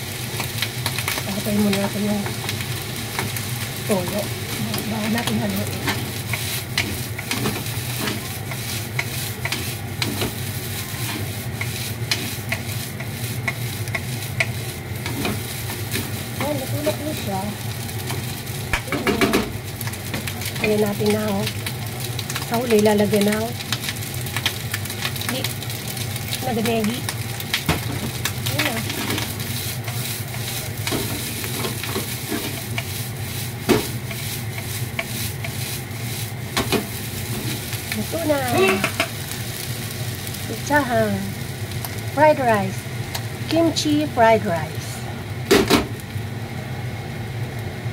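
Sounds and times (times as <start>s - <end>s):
rice sizzling in a frying pan: 0.0s - 47.9s
spatula stirring and scraping: 0.4s - 17.2s, 27.1s - 39.2s.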